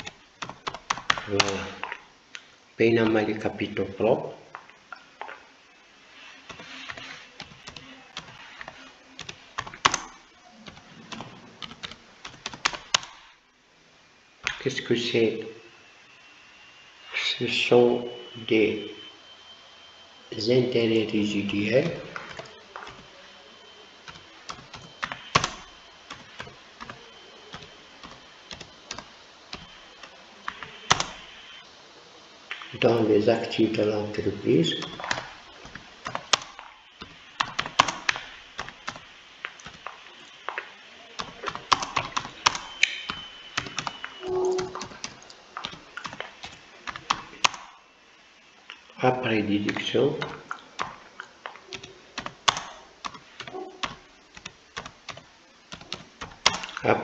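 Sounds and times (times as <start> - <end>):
computer keyboard typing: 0.0 - 2.0, 6.4 - 13.2, 21.5 - 23.1, 24.0 - 31.4, 34.6 - 47.7, 49.7 - 56.9.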